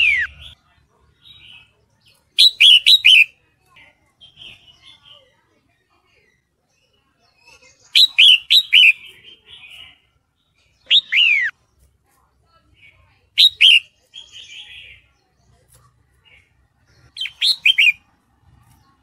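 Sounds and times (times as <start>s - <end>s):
soft bird chatter: 0.0s - 19.0s
bird calling: 2.4s - 3.4s, 7.8s - 10.0s, 10.8s - 11.6s, 13.4s - 15.0s, 16.3s - 18.1s.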